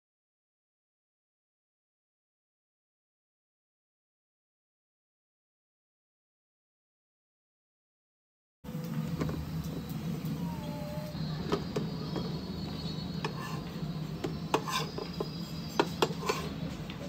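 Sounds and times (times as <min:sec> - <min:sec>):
steady low hum: 0:08.7 - 0:17.0
metal spatula lifting bread: 0:14.5 - 0:16.6.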